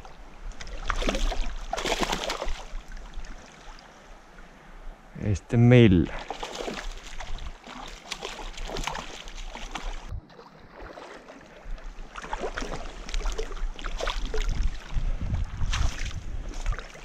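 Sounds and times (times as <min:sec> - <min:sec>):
wind buffeting microphone: 0:13.0 - 0:17.0.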